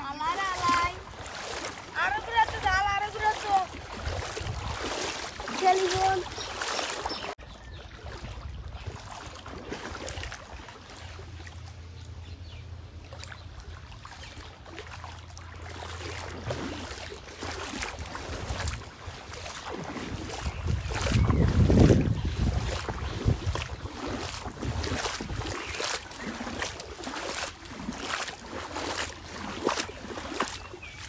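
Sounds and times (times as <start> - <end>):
water sloshing from wading: 0.0 - 31.0
low steady rumble: 8.4 - 19.3.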